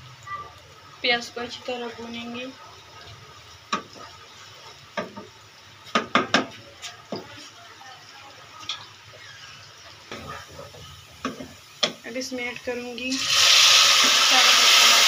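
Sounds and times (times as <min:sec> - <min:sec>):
onions sizzling: 0:00.0 - 0:15.0
spatula scraping and knocking pan: 0:08.7 - 0:12.0.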